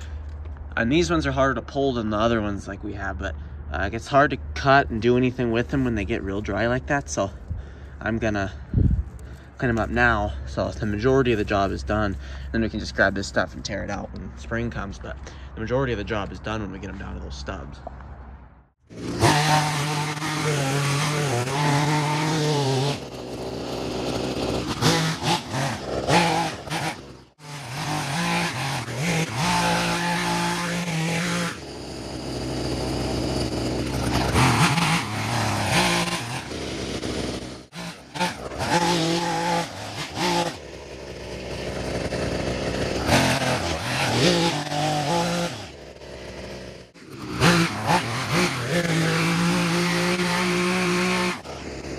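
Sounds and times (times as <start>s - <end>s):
hedge trimmer revving: 18.8s - 51.9s.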